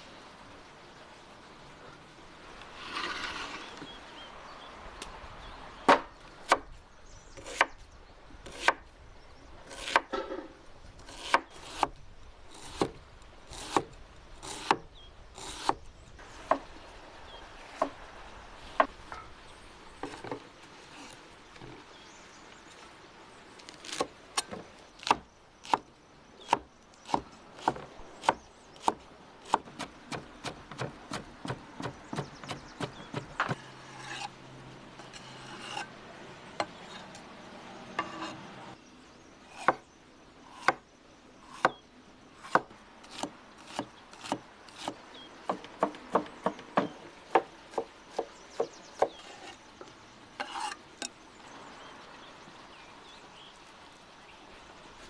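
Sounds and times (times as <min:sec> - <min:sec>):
cleaver chopping on wooden board: 0:05.9 - 0:06.7, 0:26.5 - 0:33.7, 0:42.4 - 0:49.3.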